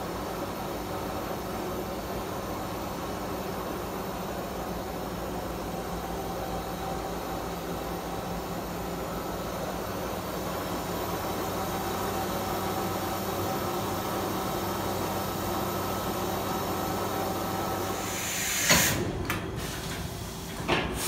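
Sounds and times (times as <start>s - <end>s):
machining center hum and whine: 0.0s - 21.0s
air hiss: 17.8s - 21.0s.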